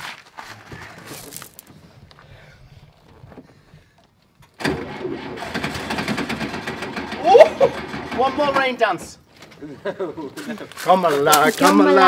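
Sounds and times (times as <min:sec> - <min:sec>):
engine cranking on starter: 0:04.4 - 0:08.8.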